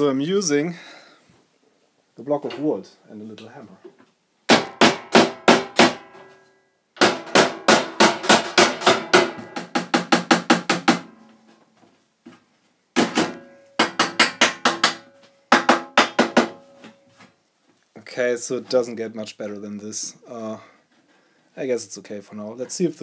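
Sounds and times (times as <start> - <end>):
hammer striking wooden block on metal: 4.5 - 6.3, 7.0 - 11.2, 13.0 - 17.0.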